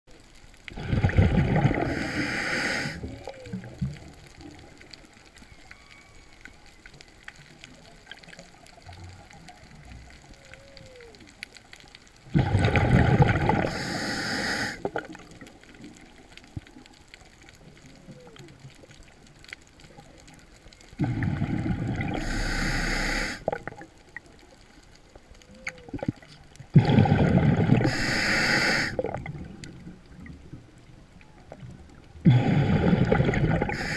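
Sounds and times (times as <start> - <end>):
whale song: 1.6 - 8.0, 9.0 - 11.5, 17.6 - 18.9, 25.3 - 26.3
diver breathing through regulator: 1.7 - 3.1, 13.6 - 14.9, 21.0 - 23.6, 26.8 - 29.1, 32.3 - 33.9.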